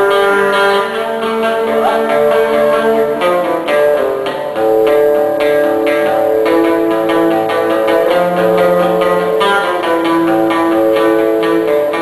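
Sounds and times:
plucked string melody: 0.0s - 12.0s
steady rhythm: 0.6s - 7.2s.

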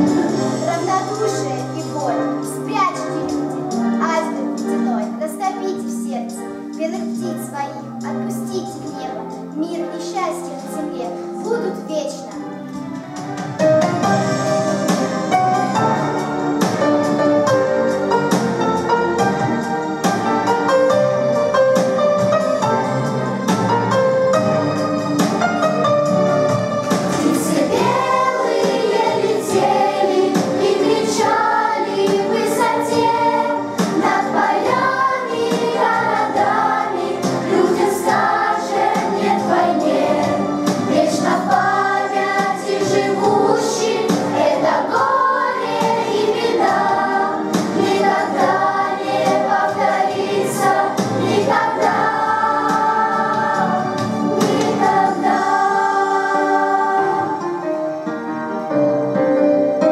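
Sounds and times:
children's choir singing: 0.0s - 5.2s, 26.9s - 57.9s
piano accompaniment: 0.0s - 59.9s.

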